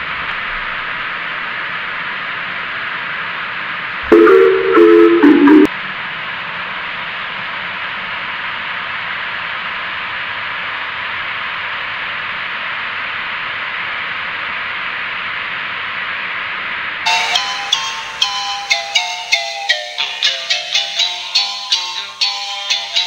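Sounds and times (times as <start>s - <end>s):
bright struck-note melody: 4.1s - 5.7s.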